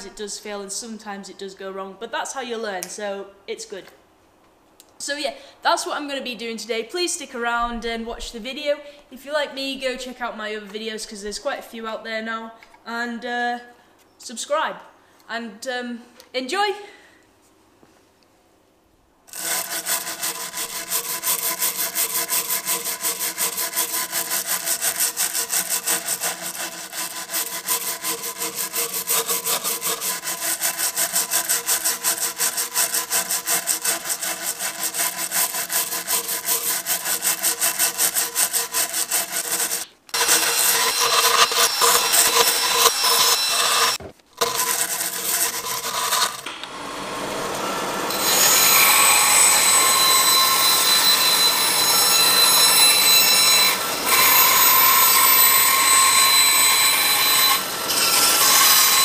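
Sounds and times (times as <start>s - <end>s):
wire brush scratching wood: 19.3s - 46.5s.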